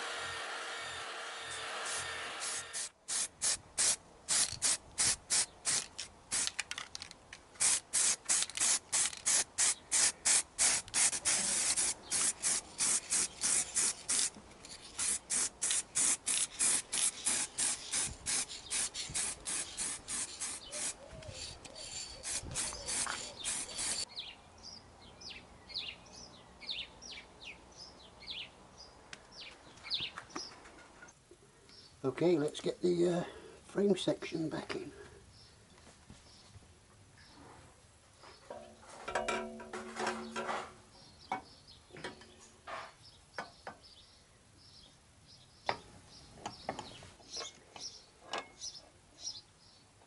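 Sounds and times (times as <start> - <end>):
birds chirping: 17.1 - 32.0, 40.2 - 49.9.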